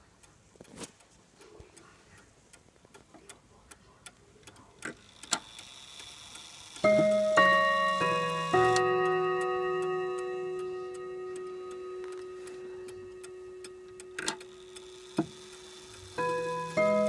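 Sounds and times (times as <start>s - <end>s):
pendulum clock ticking: 0.0s - 17.0s
mechanical clicks: 4.0s - 6.9s, 13.6s - 16.8s
clock chime ringing: 6.8s - 17.0s.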